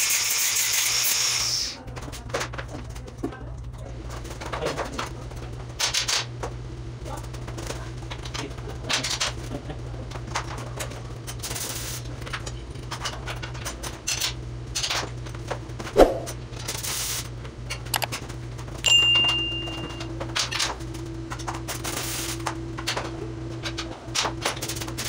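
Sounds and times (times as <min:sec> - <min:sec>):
metallic clinks and knocks: 0:18.9 - 0:20.1.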